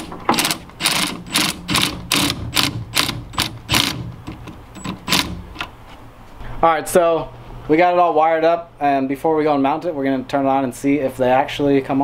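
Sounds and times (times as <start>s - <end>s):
ratchet clicking: 0.0s - 5.7s.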